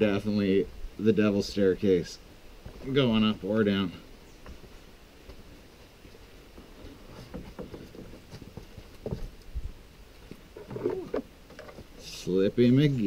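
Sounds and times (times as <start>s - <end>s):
footsteps on muddy trail: 4.4s - 11.1s
soft knocks: 7.1s - 9.3s.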